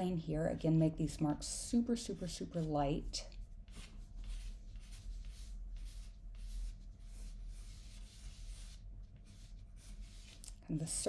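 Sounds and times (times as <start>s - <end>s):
pencil scratching on paper: 3.7s - 10.5s.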